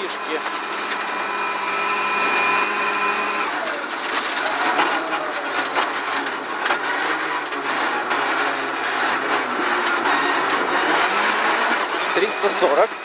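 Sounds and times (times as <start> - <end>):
engine crackling and popping: 0.0 - 13.0
rally car engine at full throttle: 0.0 - 13.0
tyres braking on gravel: 0.0 - 13.0
stones rattling under car: 3.7 - 12.7.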